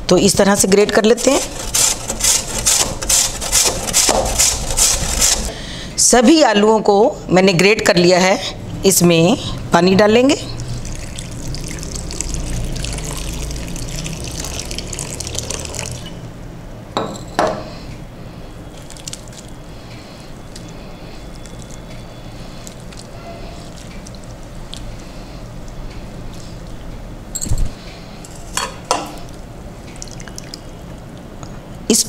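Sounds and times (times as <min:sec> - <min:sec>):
water pouring into a bowl: 0:10.6 - 0:16.1, 0:29.8 - 0:30.7.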